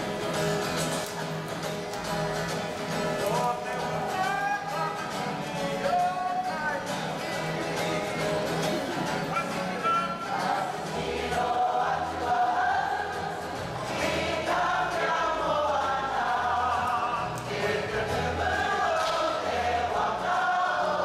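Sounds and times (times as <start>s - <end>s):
group singing in unison: 10.1s - 21.0s.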